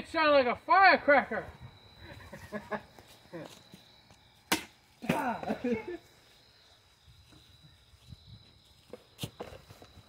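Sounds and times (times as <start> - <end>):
crickets trilling: 0.0 - 10.0
sharp crack: 4.5 - 5.4.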